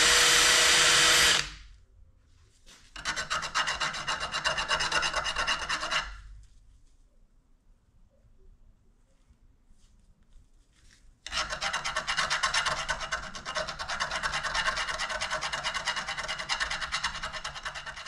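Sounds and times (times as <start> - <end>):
metal file rasping rod: 3.0 - 6.2, 11.3 - 18.0.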